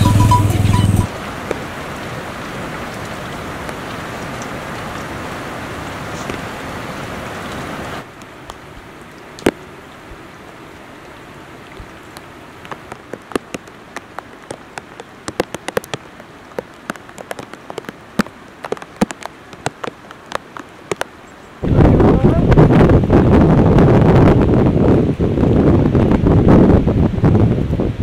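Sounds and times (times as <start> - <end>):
raindrops plopping: 0.0 - 6.6, 7.4 - 9.7, 11.0 - 21.5
steady rain hiss: 0.0 - 28.0.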